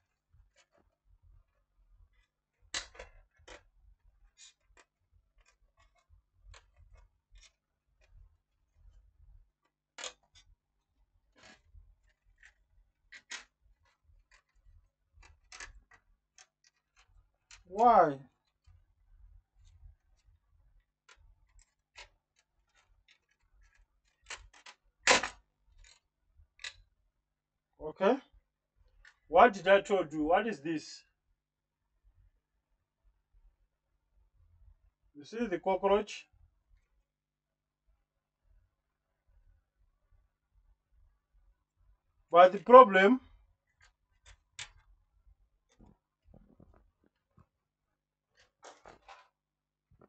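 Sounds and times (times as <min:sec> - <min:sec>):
screwdriver clicking and scraping: 0:11.3 - 0:17.7.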